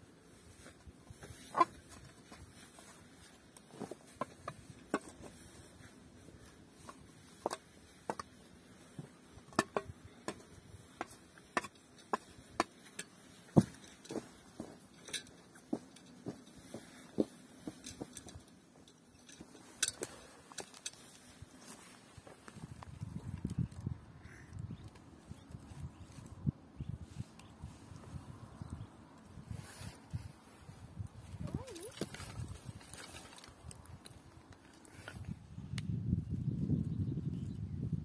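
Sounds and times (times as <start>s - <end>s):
shovel scraping stones and soil: 31.4s - 33.9s.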